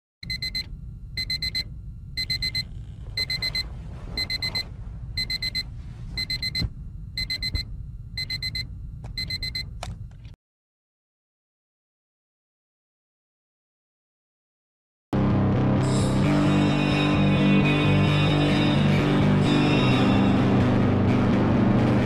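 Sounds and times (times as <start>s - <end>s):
digital alarm clock beeping: 0.2s - 3.6s, 4.2s - 4.6s, 5.2s - 5.6s, 6.2s - 9.7s
low steady hum: 0.2s - 10.4s.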